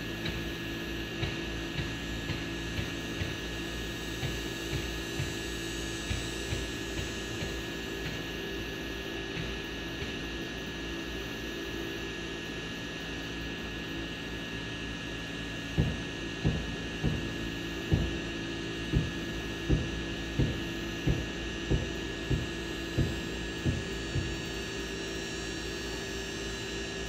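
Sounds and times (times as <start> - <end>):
drone motors humming: 12.0 - 27.0.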